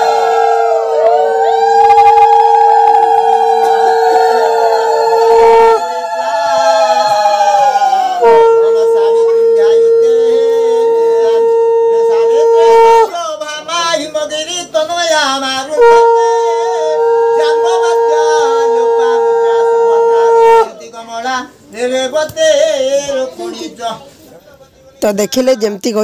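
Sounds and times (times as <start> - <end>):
wavering ululation: 0.0 - 13.1, 15.7 - 20.8
conch shell blowing: 0.0 - 13.4, 15.1 - 21.2.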